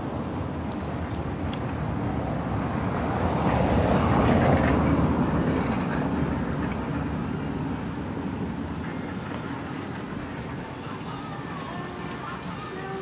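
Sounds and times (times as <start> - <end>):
motor vehicle passing by: 1.9 - 10.6.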